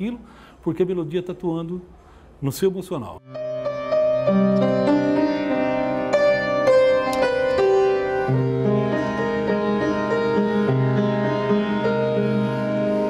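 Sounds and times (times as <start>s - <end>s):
upright piano played slowly: 3.2s - 13.0s.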